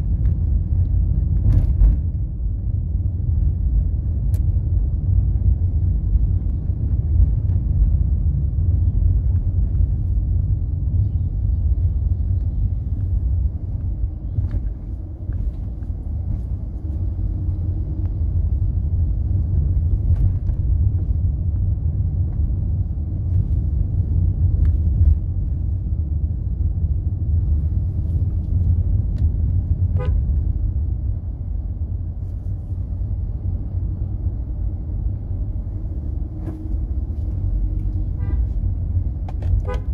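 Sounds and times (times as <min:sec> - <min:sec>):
vehicle rumbling along road: 0:00.0 - 0:39.9
short horn toot: 0:38.1 - 0:38.6.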